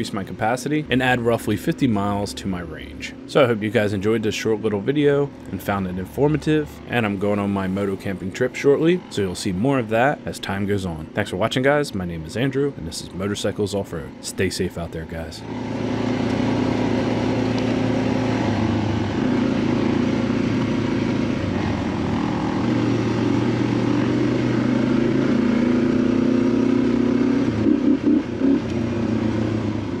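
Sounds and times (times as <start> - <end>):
motorcycle engine running: 15.4 - 30.0.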